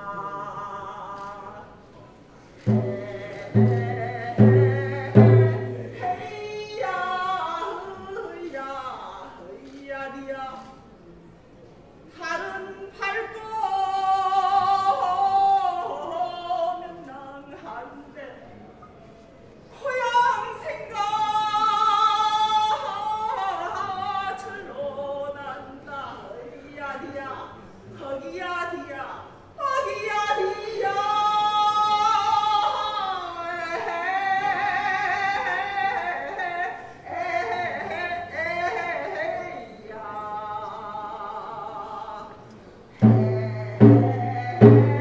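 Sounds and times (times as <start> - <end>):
woman singing long held notes: 2.6 - 9.2, 43.0 - 45.0.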